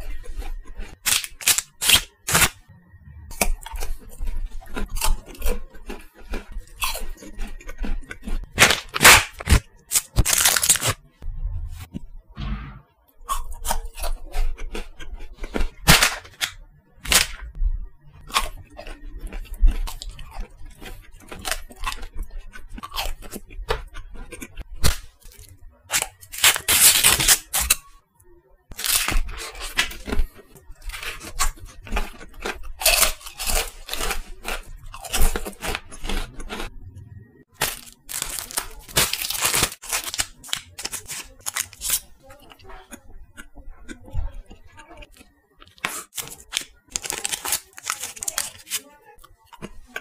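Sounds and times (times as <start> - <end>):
wrapper crackling: 0.9 - 2.6, 8.4 - 11.0, 15.8 - 17.4, 25.9 - 27.8, 28.7 - 36.4, 37.5 - 42.6, 45.6 - 48.9
chewing: 3.3 - 8.9, 13.2 - 17.2, 18.2 - 27.8, 28.7 - 50.0
wafer bars crunching: 8.5 - 11.0, 37.6 - 42.1.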